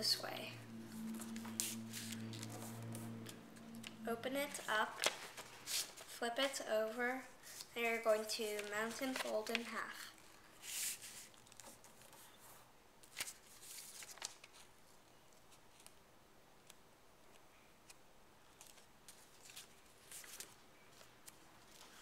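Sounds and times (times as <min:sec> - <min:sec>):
paper rustling and crinkling: 0:01.0 - 0:06.2, 0:07.4 - 0:14.8, 0:18.5 - 0:22.0.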